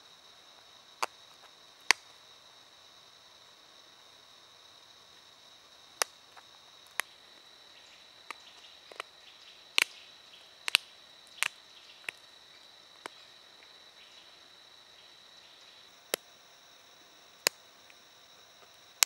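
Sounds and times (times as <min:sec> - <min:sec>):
faint high-pitched whine: 0:00.0 - 0:19.0
flint chips snapping clicks: 0:06.0 - 0:06.2, 0:08.3 - 0:09.1, 0:09.8 - 0:10.0, 0:10.6 - 0:12.2, 0:16.0 - 0:16.3, 0:17.4 - 0:18.0.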